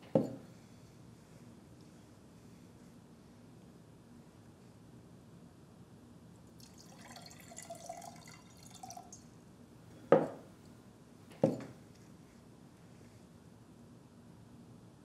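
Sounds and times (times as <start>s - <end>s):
glass knocking on wooden table: 0.1s - 0.4s, 10.1s - 10.4s, 11.4s - 11.7s
water pouring into glass: 6.6s - 9.3s.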